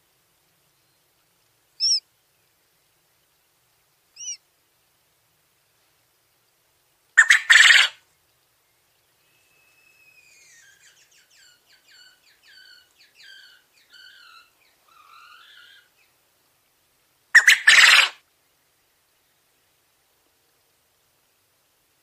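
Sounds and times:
quail crowing: 1.8 - 2.0, 4.2 - 4.4, 7.2 - 8.0, 10.3 - 16.0, 17.4 - 18.2.

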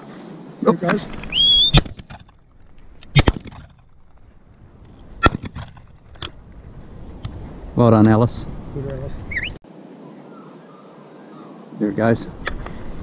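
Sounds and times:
dog whistle blast: 1.4 - 1.8.

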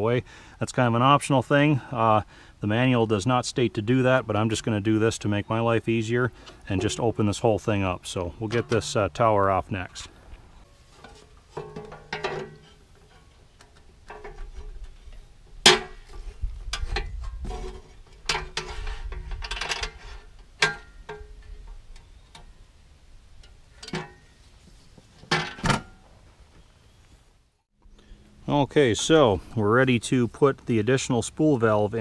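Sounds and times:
metal clanks and knocks: 8.4 - 9.3, 10.6 - 22.5, 23.4 - 24.3, 25.2 - 26.1.

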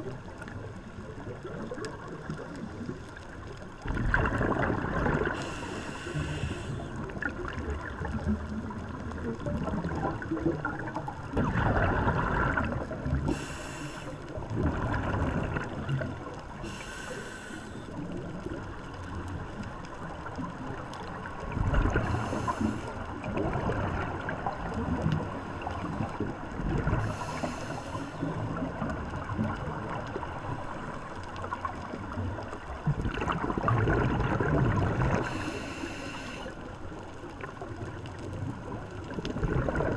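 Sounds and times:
exhaled bubbles gurgling: 0.0 - 39.9
regulator hiss on inhale: 5.3 - 7.1, 13.2 - 14.4, 16.6 - 18.2, 22.0 - 23.2, 26.9 - 28.4, 35.1 - 36.8.

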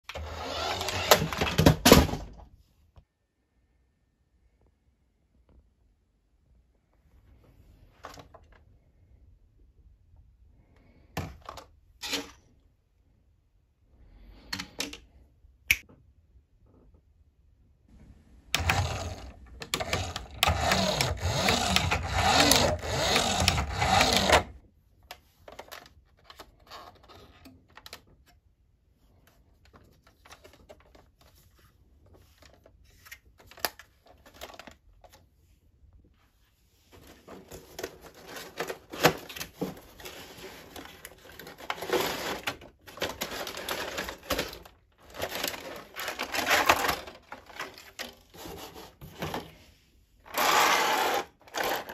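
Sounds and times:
toy electric motor and gears: 0.1 - 1.5, 18.6 - 24.6, 50.3 - 51.9
plastic toy parts clicking: 18.5 - 24.5.

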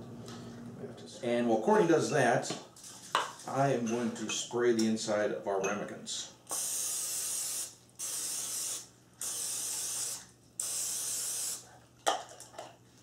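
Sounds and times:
aerosol spray hissing: 6.5 - 11.7.

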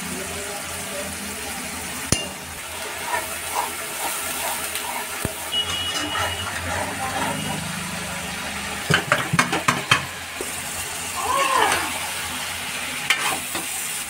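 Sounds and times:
gravy sizzling in a pan: 0.0 - 14.0
spatula tapping pan: 2.1 - 2.5, 8.9 - 10.2.

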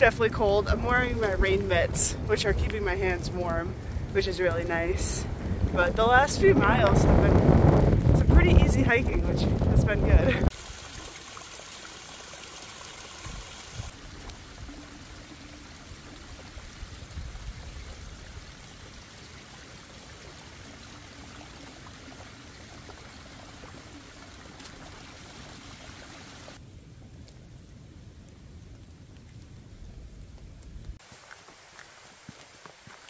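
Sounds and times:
small waterfall trickling and splashing: 10.5 - 26.6, 31.0 - 33.0.

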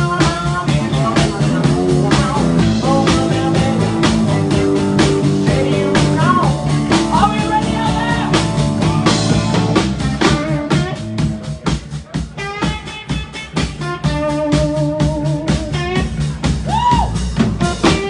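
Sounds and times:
drum kit: 0.0 - 18.0
electric bass: 0.0 - 18.0
electric guitar: 0.0 - 18.0.

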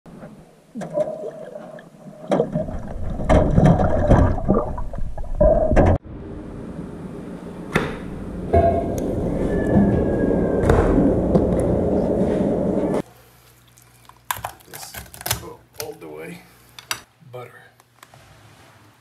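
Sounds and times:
underwater gurgling water: 0.2 - 6.0
knocks and bumps: 2.3 - 6.0.

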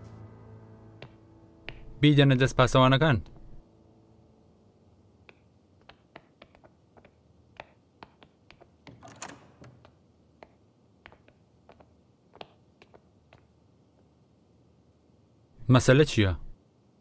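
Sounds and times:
footsteps on stone floor: 1.0 - 2.0, 5.2 - 9.0, 9.8 - 14.1.

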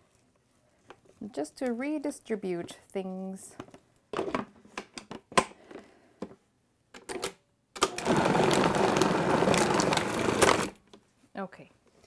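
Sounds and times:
food processor motor grinding: 7.9 - 10.8.

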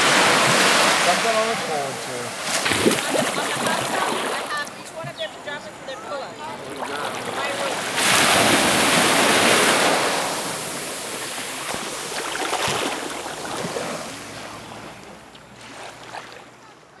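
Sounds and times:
wave breaking on beach: 0.0 - 16.6.

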